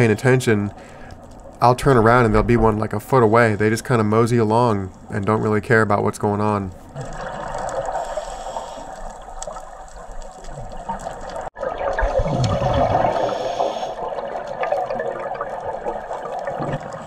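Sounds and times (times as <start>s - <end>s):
underwater breathing bubbles: 6.9s - 11.2s, 12.2s - 15.4s.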